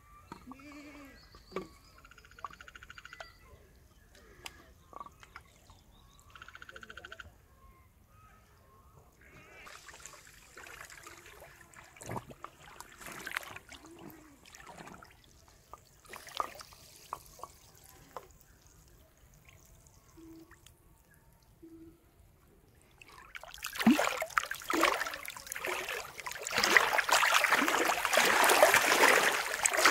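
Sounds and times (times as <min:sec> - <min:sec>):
water sloshing and splashing: 0:09.7 - 0:18.4, 0:22.8 - 0:29.9.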